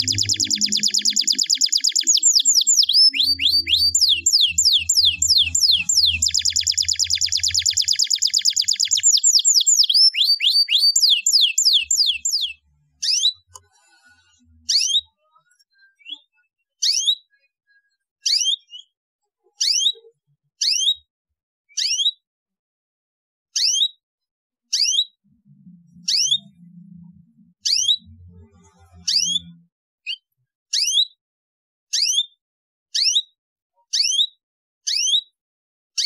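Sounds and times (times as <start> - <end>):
canary singing: 0.0 - 13.6, 24.7 - 29.6.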